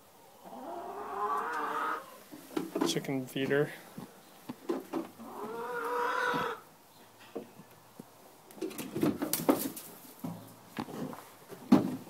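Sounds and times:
hen calling: 0:05.2 - 0:06.7
knocks and rustles at nest boxes: 0:08.6 - 0:12.0.

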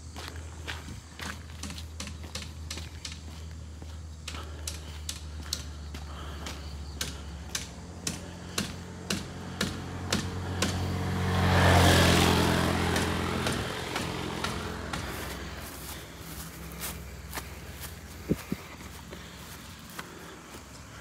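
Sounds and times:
footsteps on concrete: 0:00.0 - 0:07.5, 0:13.0 - 0:21.0
vehicle passing: 0:00.1 - 0:21.0.

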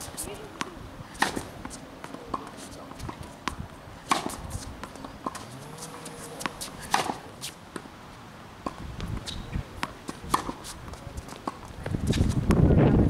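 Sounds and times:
racket striking tennis ball: 0:00.0 - 0:07.9, 0:08.6 - 0:12.4
tennis ball bouncing on hard court: 0:00.5 - 0:07.9, 0:08.6 - 0:12.6.

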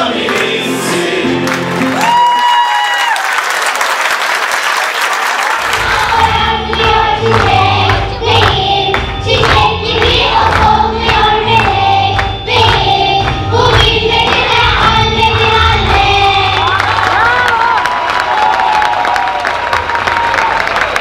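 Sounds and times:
children's choir singing: 0:00.0 - 0:01.8, 0:05.5 - 0:17.8
applause: 0:01.4 - 0:21.0.

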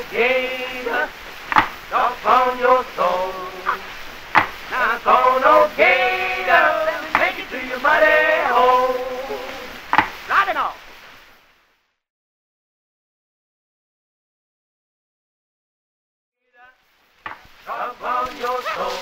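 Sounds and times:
man singing: 0:00.0 - 0:04.0, 0:04.6 - 0:09.8, 0:17.6 - 0:19.0
sharp percussive knocks: 0:01.5 - 0:01.8, 0:04.3 - 0:04.6, 0:09.9 - 0:10.2.

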